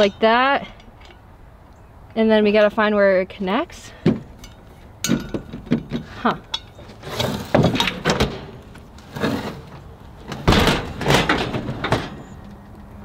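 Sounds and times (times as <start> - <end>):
metal oven knocking and rattling: 10.3 - 12.3.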